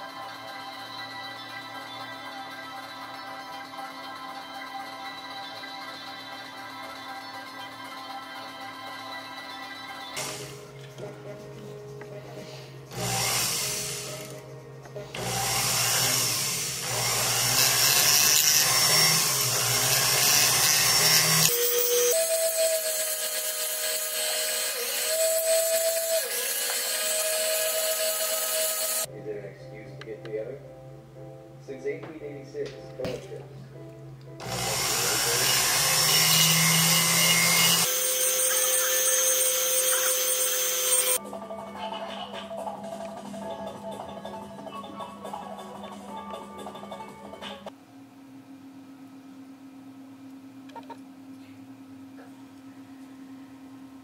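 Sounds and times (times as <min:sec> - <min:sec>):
rotary tool grinding metal: 0:12.9 - 0:14.4, 0:15.2 - 0:29.1, 0:34.4 - 0:41.2.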